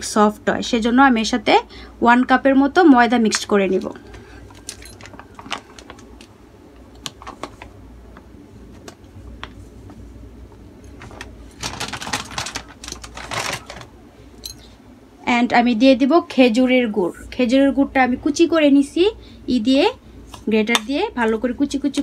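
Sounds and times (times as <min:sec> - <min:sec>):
plastic bag crinkling: 0:04.1 - 0:06.3, 0:10.9 - 0:14.0.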